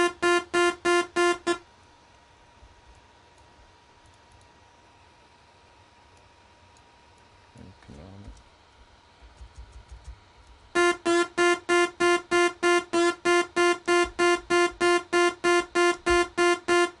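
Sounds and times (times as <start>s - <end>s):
repeated synthesizer note: 0.0s - 1.6s, 10.8s - 17.0s.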